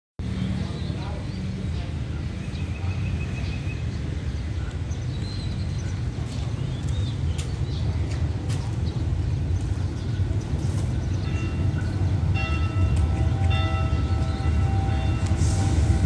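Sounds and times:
small birds chirping: 0.4 - 12.3.

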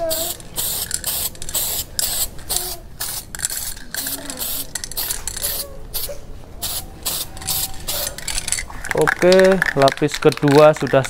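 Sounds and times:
aerosol can spray bursts: 0.0 - 8.1.

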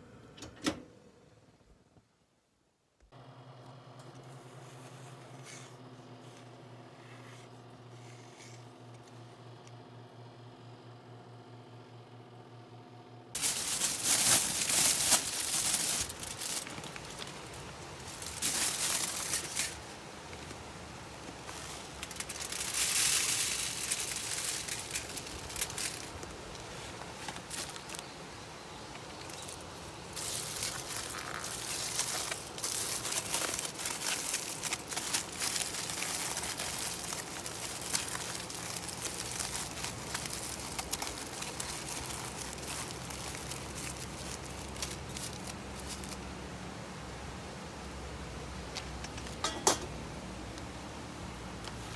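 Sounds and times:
aluminium foil crinkling: 13.4 - 46.2
wood chips rustling: 13.4 - 46.3.

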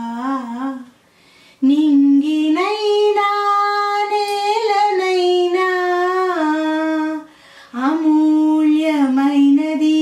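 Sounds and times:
woman singing unaccompanied: 0.0 - 1.0, 1.6 - 10.0
woman breathing in: 1.0 - 1.6, 7.3 - 7.8.

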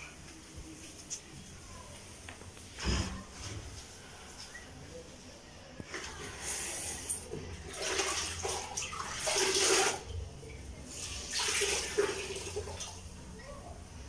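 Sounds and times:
water splashing into a plastic bucket: 7.2 - 10.1, 11.0 - 13.0.

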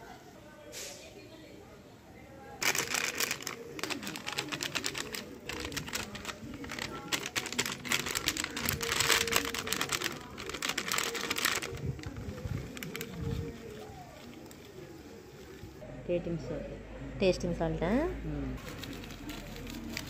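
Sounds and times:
plastic sachet crinkling: 2.6 - 15.7, 18.6 - 20.0.

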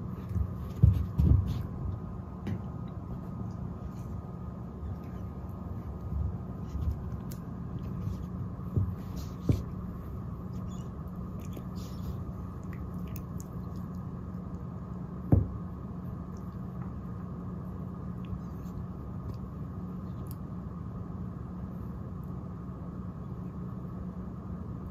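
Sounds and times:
soft scuffing and rustling: 0.0 - 4.2, 5.0 - 10.7
low room hum: 0.0 - 24.9
dull thumps on floor: 0.2 - 1.7, 8.6 - 9.8, 15.3 - 15.6.

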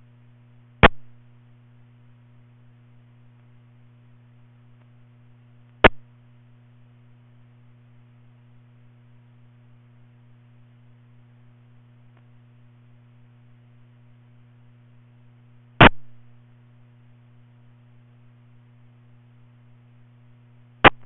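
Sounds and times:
low electrical hum: 0.0 - 21.0
sharp loud click: 0.8 - 1.1, 5.8 - 6.0, 15.8 - 16.1
faint tick: 12.1 - 12.4.

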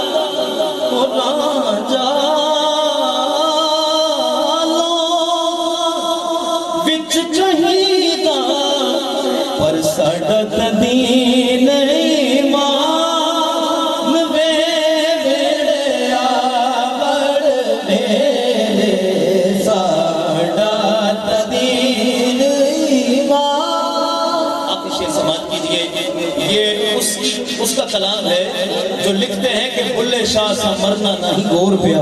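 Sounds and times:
man singing devotional song: 0.0 - 32.0.

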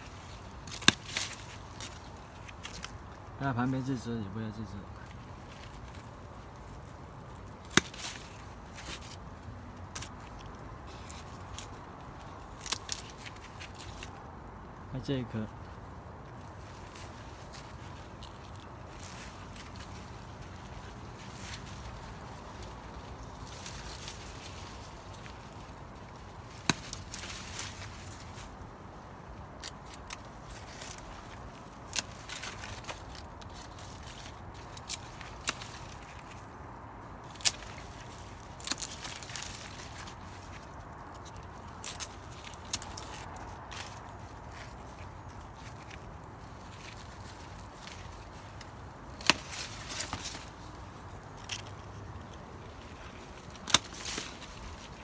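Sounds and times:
rustling leaves and twigs: 0.0 - 55.0
pruning shears snipping: 0.5 - 3.2, 7.4 - 9.2, 9.8 - 14.2, 23.3 - 28.4, 29.4 - 36.5, 37.2 - 44.8, 45.7 - 52.4, 53.3 - 55.0.

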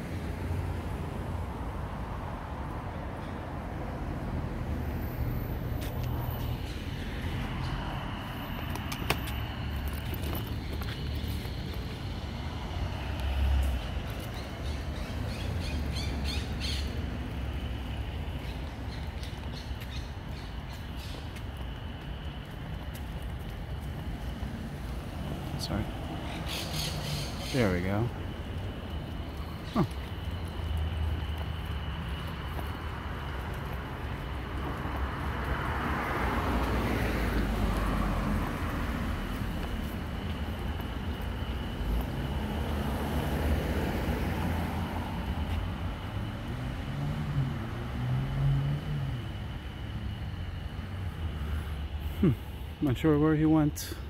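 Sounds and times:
car passing: 0.0 - 54.0
traffic rumble: 0.0 - 54.0
short bird calls: 26.2 - 27.7.

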